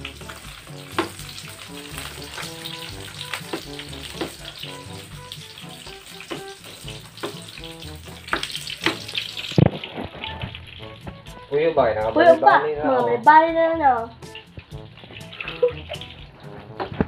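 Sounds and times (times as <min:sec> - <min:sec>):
food sizzling in a pan: 0:00.0 - 0:16.8
music playing: 0:00.0 - 0:17.0
utensil clacking against pan: 0:00.1 - 0:11.4.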